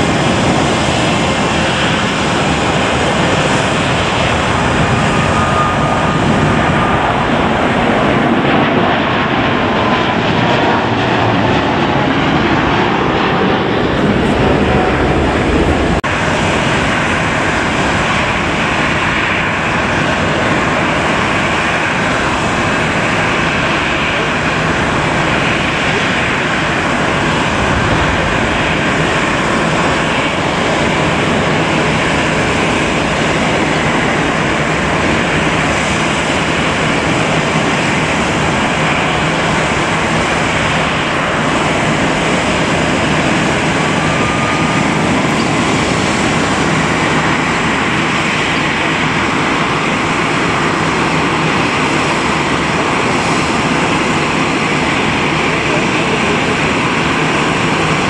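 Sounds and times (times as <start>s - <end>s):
jet engines running: 0.0s - 58.0s
faint whistle: 5.0s - 7.2s, 44.0s - 45.6s.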